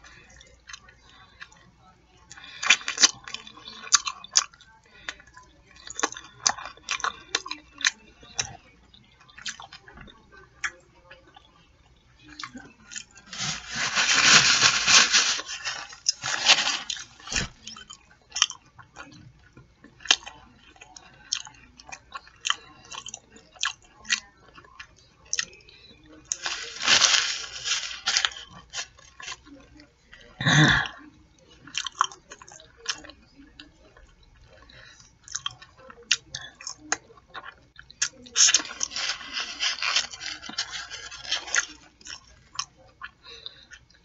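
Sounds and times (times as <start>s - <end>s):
paper napkin rustling: 13.3s - 17.6s, 26.3s - 29.0s, 38.4s - 41.8s
chewing and sucking on chicken: 31.6s - 44.0s.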